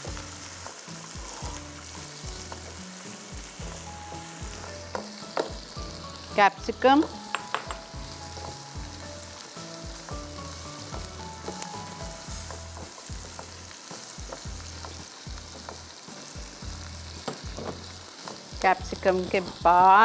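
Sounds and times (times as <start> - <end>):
vegetables sizzling in oil: 0.0 - 20.0
spoon scraping and tapping pan: 4.8 - 5.7, 7.0 - 8.6, 12.4 - 15.9.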